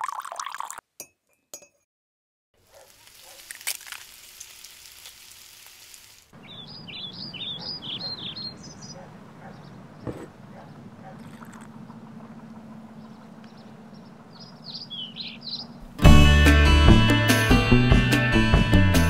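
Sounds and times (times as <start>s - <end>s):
liquid pouring: 0.0s - 0.8s, 3.0s - 6.0s, 11.2s - 11.9s
eggs sizzling in frying pan: 2.6s - 6.4s
small birds chirping: 6.3s - 16.0s.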